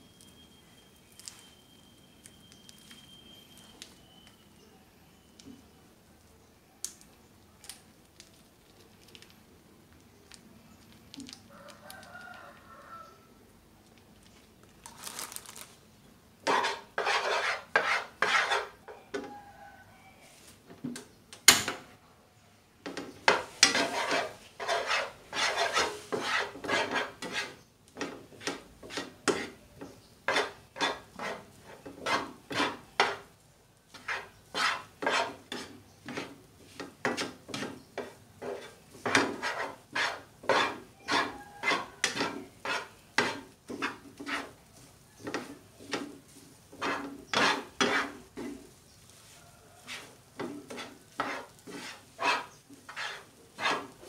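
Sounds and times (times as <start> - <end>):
spatula scraping frying pan: 16.4 - 19.3, 22.9 - 33.3, 33.9 - 54.0.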